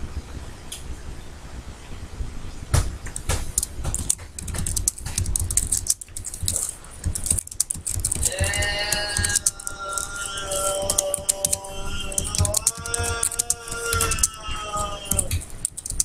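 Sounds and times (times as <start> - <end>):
keyboard key clicks: 3.1 - 14.4, 15.1 - 16.0.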